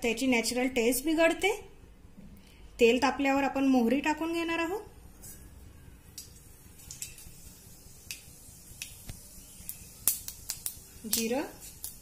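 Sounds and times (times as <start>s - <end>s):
mustard seeds popping in oil: 6.1s - 12.0s.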